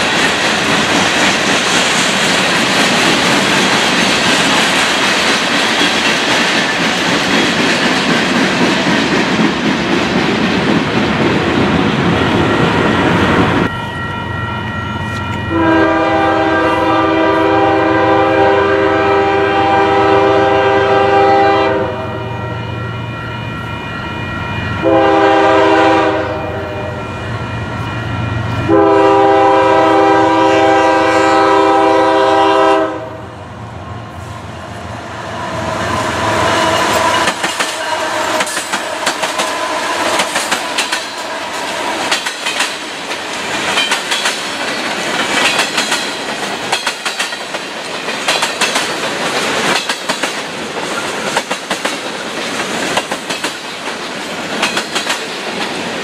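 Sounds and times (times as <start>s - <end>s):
train wheels clacking over rail joints: 0.0s - 11.5s, 36.6s - 56.0s
locomotive air horn blasts: 15.1s - 22.7s, 24.8s - 27.1s, 28.6s - 33.4s, 36.2s - 40.1s.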